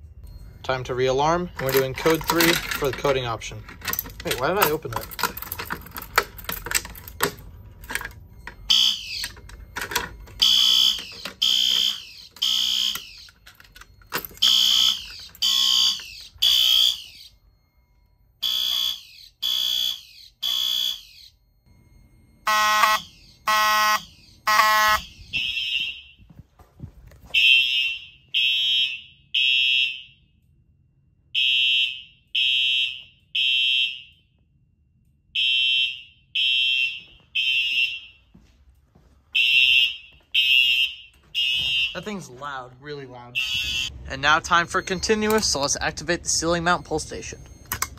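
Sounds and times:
fire alarm horns blasting: 0.0s - 47.9s.

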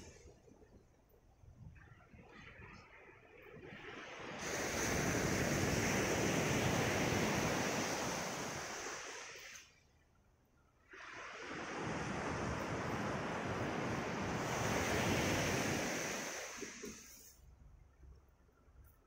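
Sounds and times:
sea waves washing up gravel beach: 3.8s - 9.7s, 10.9s - 17.3s.

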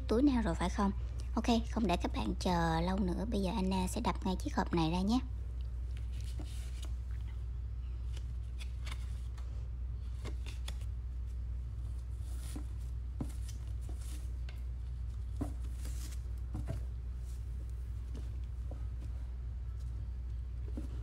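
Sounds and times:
steady low hum: 0.0s - 21.0s
gloved hands handling paper card: 5.5s - 21.0s.

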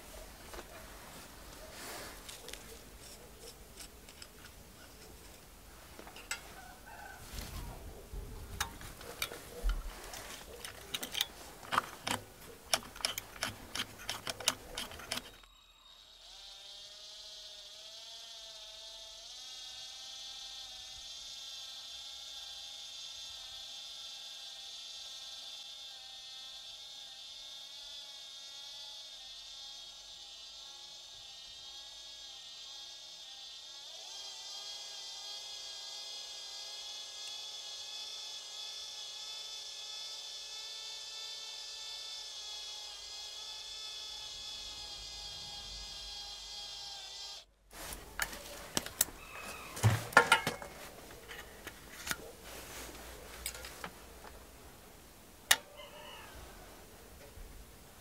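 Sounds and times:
cordless drill whining: 8.6s - 52.3s
sharp clicks: 10.6s - 15.5s.

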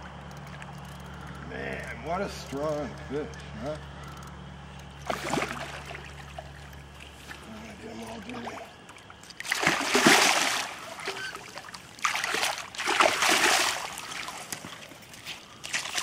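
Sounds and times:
fish splashing at the surface: 5.0s - 7.4s, 8.1s - 16.0s.

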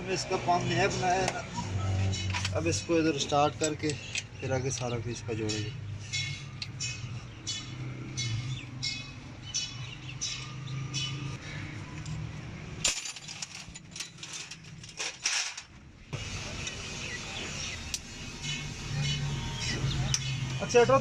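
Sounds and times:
small birds chirping: 1.2s - 12.0s, 16.5s - 21.0s.

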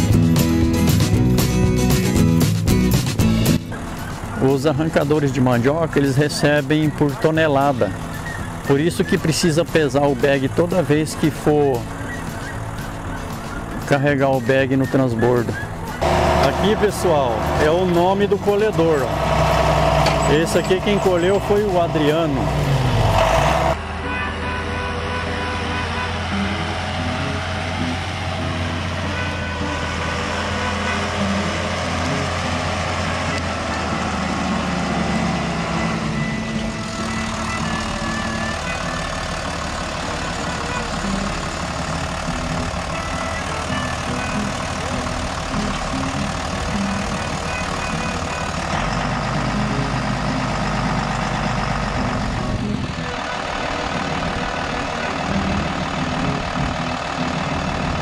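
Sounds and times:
heavy diesel engine running: 0.0s - 58.0s.

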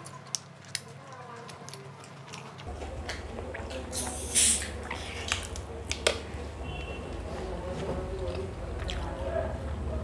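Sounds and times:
carbonation hiss: 3.9s - 5.4s.

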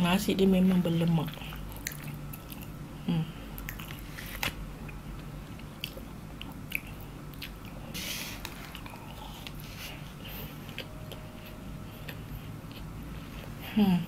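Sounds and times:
person chewing: 1.3s - 2.8s, 3.5s - 13.8s
short hissing noise: 7.9s - 8.4s.

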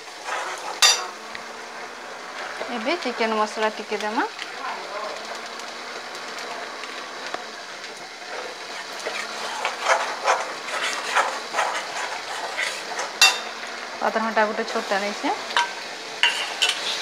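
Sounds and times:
paste sizzling in a wok: 0.0s - 17.0s
metal spoon scraping a wok: 0.2s - 1.2s, 8.3s - 13.5s, 15.6s - 17.0s.

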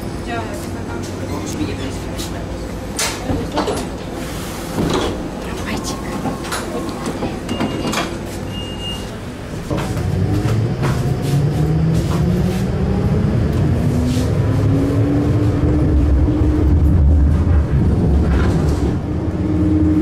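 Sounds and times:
rail car rumble: 0.0s - 20.0s
door closing beep: 7.4s - 9.2s.

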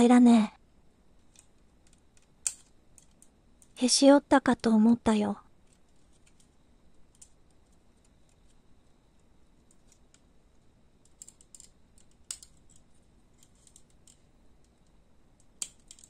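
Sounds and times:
plastic parts clicking together: 1.2s - 3.8s, 5.6s - 8.6s, 11.0s - 16.0s.

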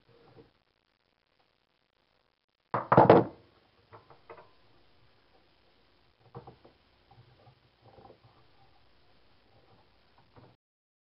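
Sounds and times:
wooden knocks and clatters: 2.8s - 4.6s, 6.2s - 8.5s.

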